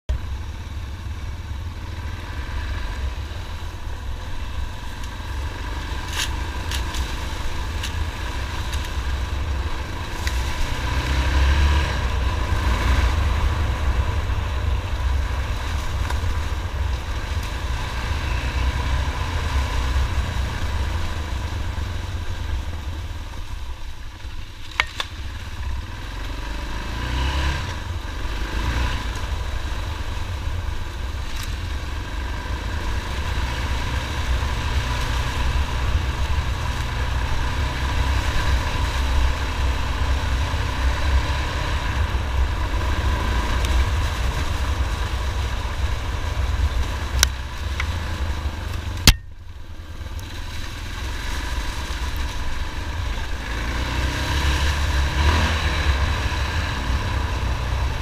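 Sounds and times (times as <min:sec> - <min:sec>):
motorcycle engine revving: 0:00.0 - 0:58.0
sharp clicks from motorcycle: 0:02.4 - 0:10.8, 0:15.0 - 0:17.6, 0:18.9 - 0:26.7, 0:28.9 - 0:30.4, 0:31.0 - 0:31.9, 0:32.8 - 0:41.2, 0:41.8 - 0:53.6.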